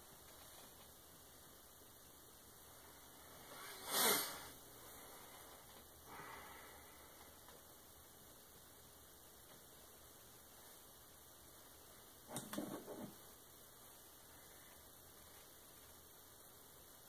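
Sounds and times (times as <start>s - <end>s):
person breathing sharply: 6.1s - 7.3s.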